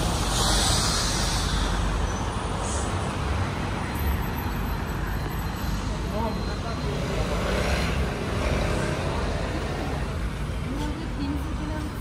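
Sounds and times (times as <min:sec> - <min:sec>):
hiss: 0:00.0 - 0:03.9
traffic rumble: 0:00.0 - 0:12.0.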